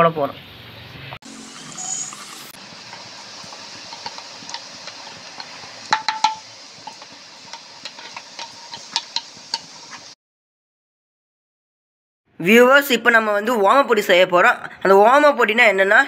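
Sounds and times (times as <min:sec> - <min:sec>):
batter sizzling in hot oil: 0:01.2 - 0:10.2
ladle clinking against pan: 0:05.4 - 0:09.7.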